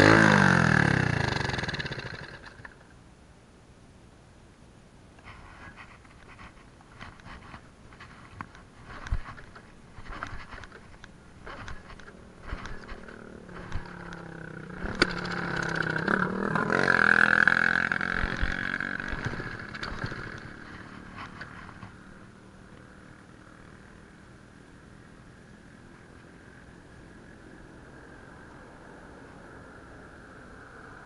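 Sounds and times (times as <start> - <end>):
vehicle passing: 11.4 - 22.4.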